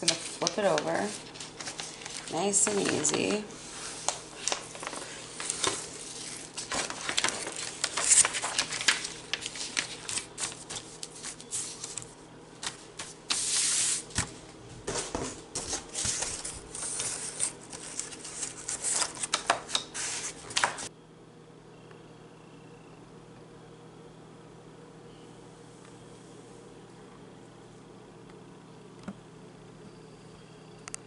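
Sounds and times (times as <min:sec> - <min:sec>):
paper and plastic rustling: 0:00.0 - 0:20.9.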